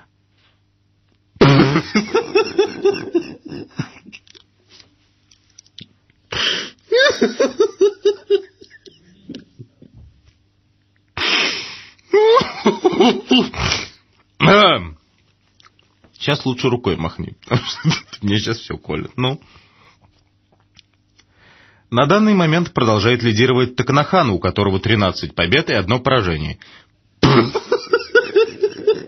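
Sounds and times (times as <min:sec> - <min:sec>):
man laughing: 0:01.4 - 0:04.4, 0:06.5 - 0:09.8, 0:12.1 - 0:14.0, 0:17.5 - 0:18.3, 0:27.2 - 0:29.0.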